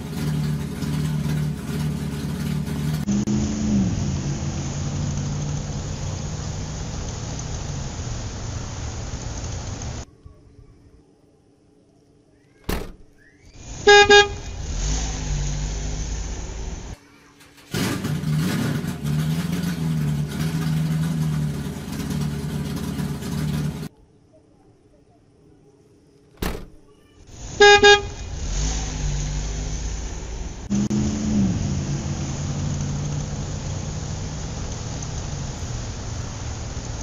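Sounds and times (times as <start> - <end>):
car engine running: 0.0 - 10.0, 13.7 - 23.9
car horn beeps: 13.8 - 14.6, 27.6 - 28.3.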